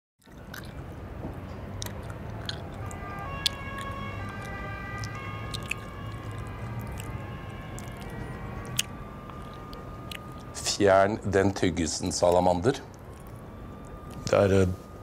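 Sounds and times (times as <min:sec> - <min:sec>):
person chewing gum: 0:00.2 - 0:10.6, 0:12.9 - 0:14.3.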